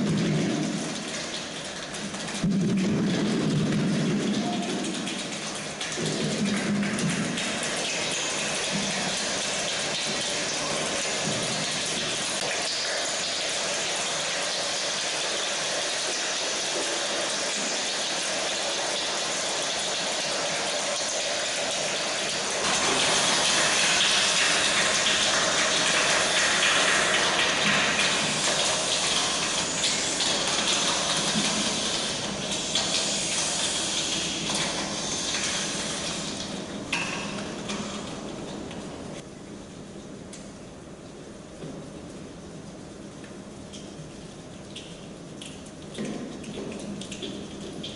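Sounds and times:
children's hand percussion imitating rain: 0:04.2 - 0:07.6.

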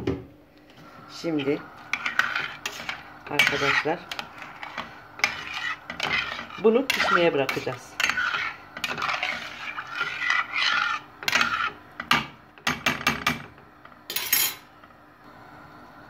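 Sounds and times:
spoon scraping in pot: 0:00.7 - 0:13.5.

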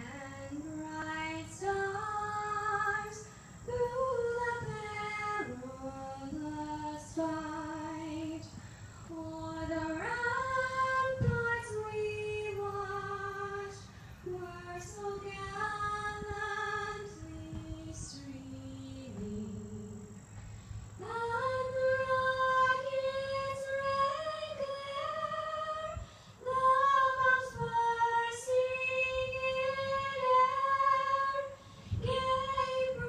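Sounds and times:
woman singing unaccompanied: 0:00.0 - 0:20.2, 0:21.0 - 0:33.0.

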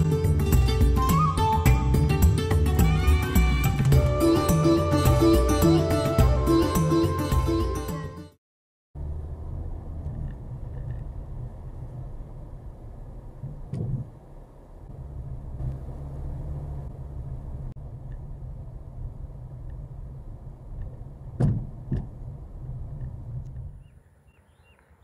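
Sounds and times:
car engine and road rumble: 0:00.0 - 0:08.0, 0:09.0 - 0:25.0
loud thumps: 0:21.3 - 0:22.2
knock: 0:21.4 - 0:22.1.

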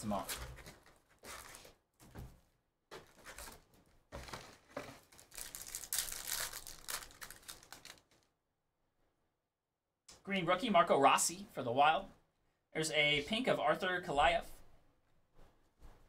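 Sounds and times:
wrappers tearing and crinkling: 0:00.5 - 0:01.8, 0:04.2 - 0:08.3.

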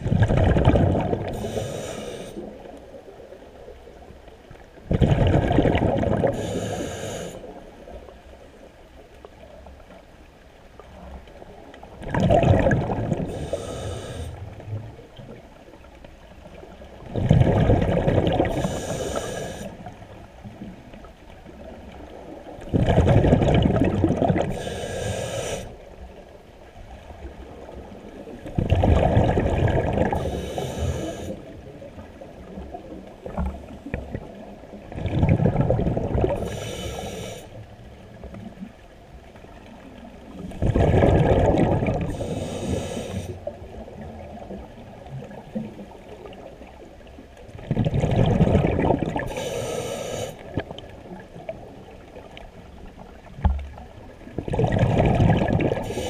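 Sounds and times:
exhaled bubbles bursting: 0:00.0 - 0:01.4, 0:04.9 - 0:06.4, 0:12.0 - 0:13.3, 0:17.0 - 0:18.7, 0:22.6 - 0:24.6, 0:28.6 - 0:30.3, 0:33.2 - 0:36.4, 0:40.6 - 0:42.2, 0:47.6 - 0:49.4, 0:54.2 - 0:56.0
regulator inhale hiss: 0:01.2 - 0:02.6, 0:06.3 - 0:07.6, 0:13.2 - 0:14.6, 0:18.5 - 0:20.0, 0:24.5 - 0:25.9, 0:30.1 - 0:31.6, 0:36.4 - 0:37.6, 0:42.1 - 0:43.6, 0:49.3 - 0:50.6.

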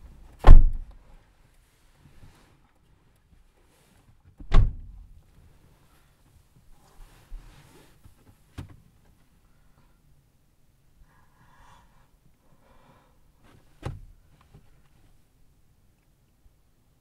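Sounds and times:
sharp knocks in car cabin: 0:00.4 - 0:00.9, 0:04.4 - 0:04.9
soft breath-like sounds: 0:10.9 - 0:13.8.

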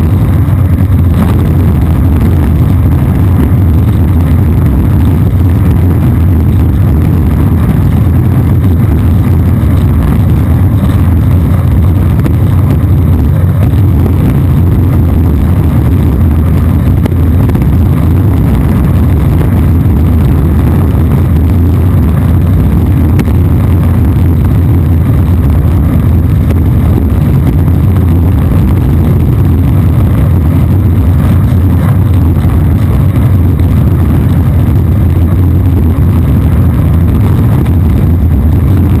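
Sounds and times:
longboard wheels rumbling on asphalt: 0:00.0 - 0:39.0.

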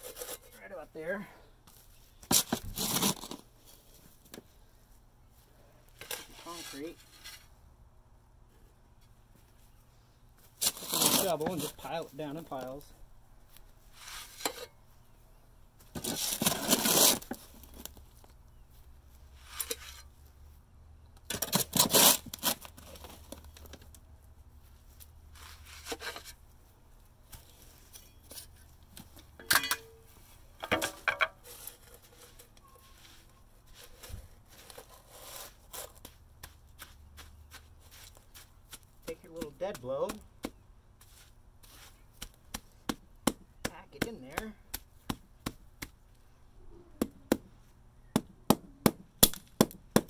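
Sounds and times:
shovel scraping concrete mix: 0:00.0 - 0:00.7, 0:06.0 - 0:07.4, 0:10.6 - 0:11.9, 0:16.0 - 0:17.4.

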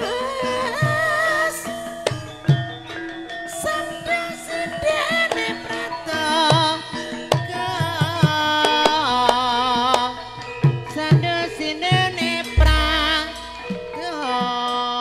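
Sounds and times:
woman singing into a microphone: 0:00.0 - 0:02.2, 0:03.5 - 0:15.0
gamelan accompaniment: 0:00.0 - 0:15.0
low hand-drum strokes: 0:12.6 - 0:14.0.

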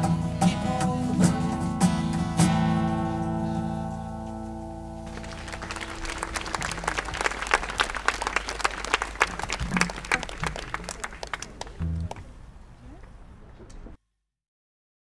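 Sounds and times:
audience applause: 0:05.1 - 0:12.4.

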